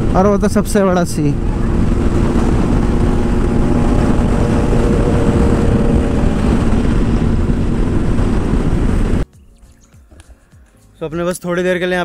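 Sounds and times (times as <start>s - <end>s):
motorcycle engine cruising: 0.0s - 9.2s
wind rush on microphone: 0.0s - 9.2s.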